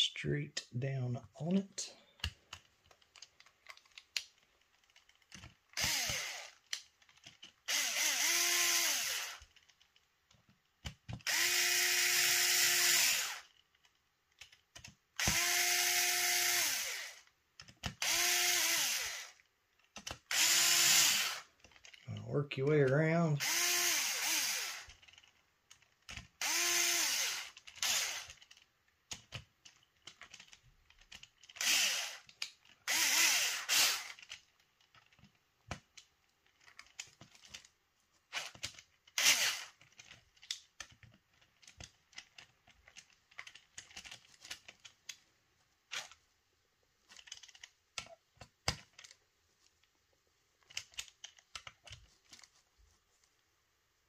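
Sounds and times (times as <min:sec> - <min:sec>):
small parts clicking and tapping: 0:02.0 - 0:53.5
electric screwdriver whining: 0:05.7 - 0:06.6, 0:07.6 - 0:09.5, 0:11.2 - 0:13.5, 0:15.2 - 0:17.3, 0:17.9 - 0:19.4, 0:20.1 - 0:21.5, 0:23.4 - 0:25.0, 0:26.4 - 0:28.4, 0:31.5 - 0:34.2, 0:38.3 - 0:39.8.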